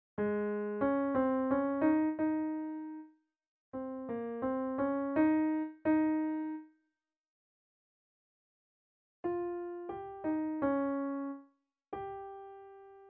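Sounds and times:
piano single-note melody: 0.2 - 3.1, 3.8 - 6.7, 9.3 - 11.4, 12.0 - 13.0.

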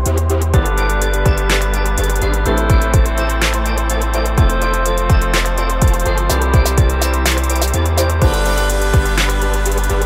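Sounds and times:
hi-hat: 0.0 - 10.0
low bass notes: 0.0 - 10.0
kick drum hits: 2.5 - 3.2.

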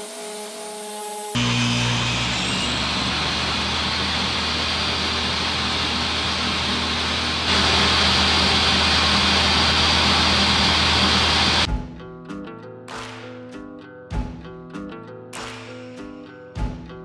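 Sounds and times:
table saw running: 0.0 - 11.7.

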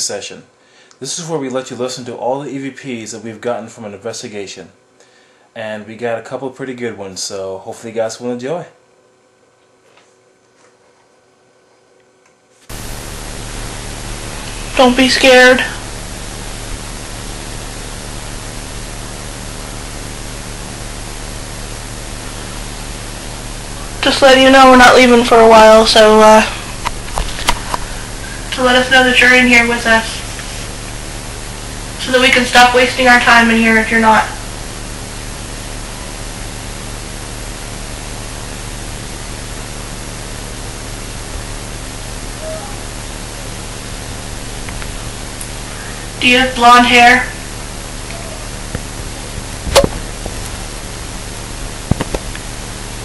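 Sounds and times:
faint low hum: 0.0 - 53.0
steady hiss: 12.7 - 53.0.

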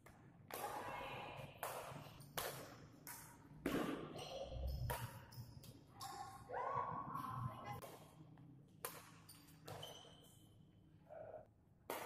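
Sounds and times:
rackets hitting shuttlecock: 1.6 - 6.2, 8.8 - 9.9.

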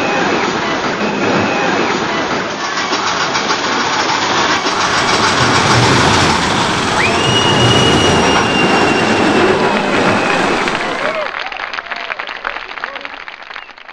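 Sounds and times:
roller coaster cars rattling: 0.0 - 11.7
high sliding tone: 4.5 - 11.3.

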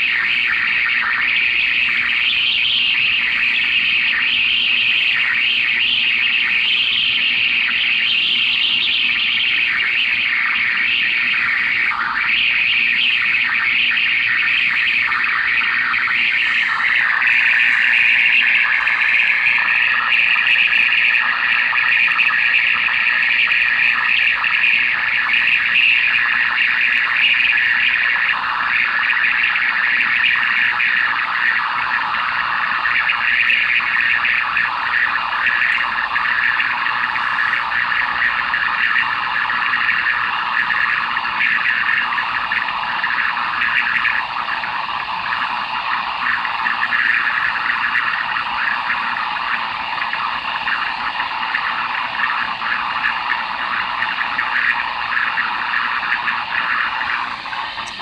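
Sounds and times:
faint steady tones: 0.0 - 58.0
loud radio static hiss: 0.0 - 58.0.

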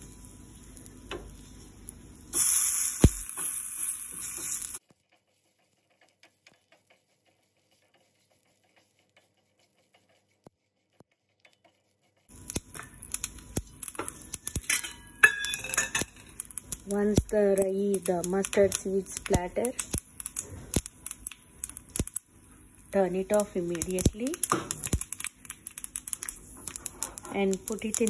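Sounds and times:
loud sizzling hiss: 0.0 - 4.8
mustard seeds crackling and popping: 0.6 - 4.9, 12.3 - 28.0.

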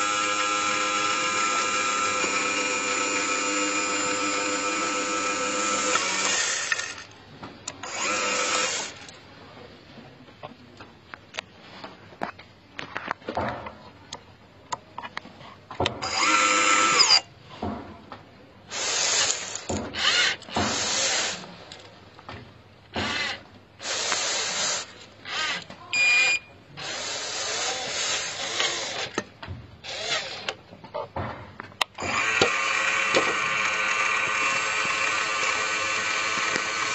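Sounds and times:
hydraulic pump whirring: 0.0 - 9.1, 15.9 - 17.3, 18.7 - 21.8, 22.9 - 30.6, 31.9 - 36.9.

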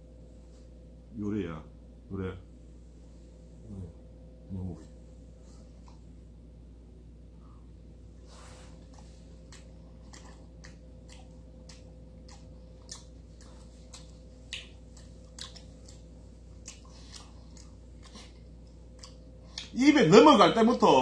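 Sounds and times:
faint steady hum: 0.0 - 21.0
person chewing wetly: 8.8 - 19.8.

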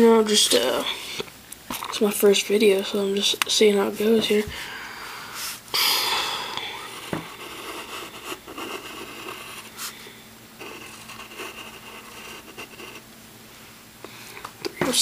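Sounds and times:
pencil scratching on paper: 6.6 - 9.9, 10.6 - 13.0.

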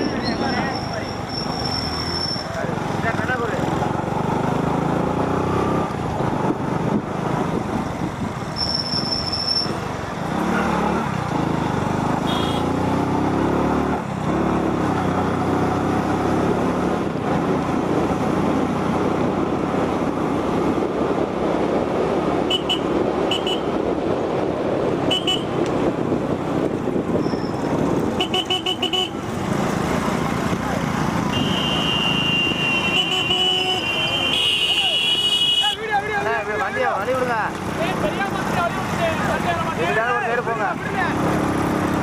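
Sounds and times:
motorcycle engines running: 0.0 - 42.0
short horn toots: 31.3 - 35.8.

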